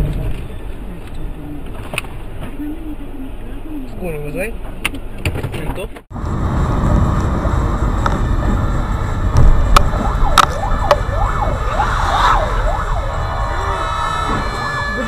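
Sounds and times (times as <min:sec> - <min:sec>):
road rumble on wet road: 0:00.0 - 0:15.0
fire engine siren wailing: 0:08.2 - 0:15.0.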